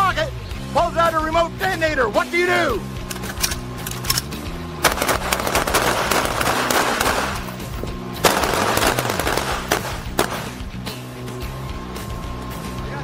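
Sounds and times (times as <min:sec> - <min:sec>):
background music: 0:00.0 - 0:13.0
rifles firing rapid shots: 0:03.1 - 0:10.7.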